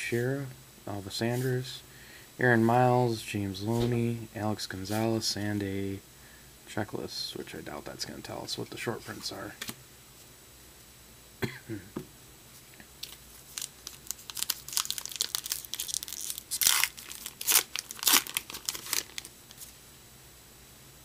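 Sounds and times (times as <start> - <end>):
plastic wrapper ripping and crinkling: 13.0 - 19.7.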